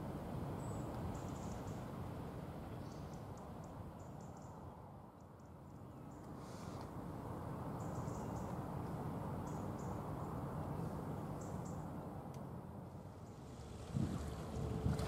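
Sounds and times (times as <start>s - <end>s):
low outdoor rumble: 6.9s - 15.0s.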